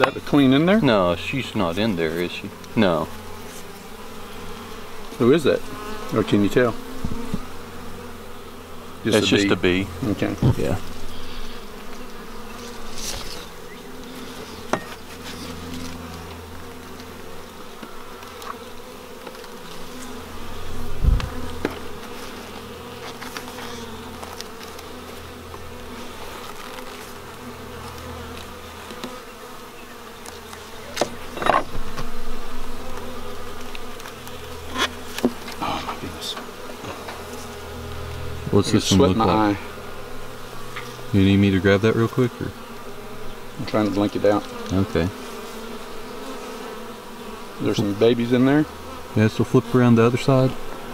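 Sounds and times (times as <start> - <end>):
bees buzzing: 0.0 - 50.9.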